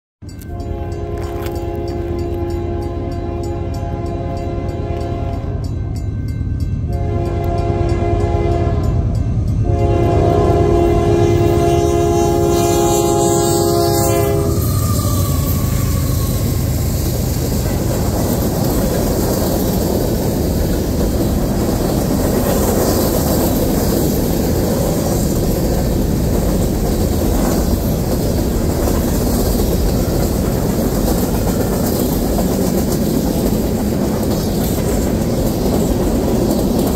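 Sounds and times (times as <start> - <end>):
locomotive air horn blasts: 0.4 - 5.8, 6.9 - 16.7
freight cars rumbling past: 7.8 - 36.9
wheels clacking over rail joints: 13.8 - 36.9.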